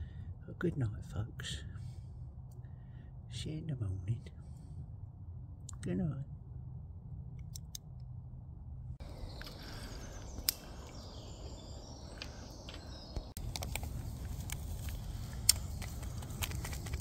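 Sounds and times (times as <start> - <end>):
faint birdsong: 0.0 - 6.3, 9.0 - 17.0
low steady rumble: 0.0 - 17.0
paper sachet crinkling: 13.4 - 17.0.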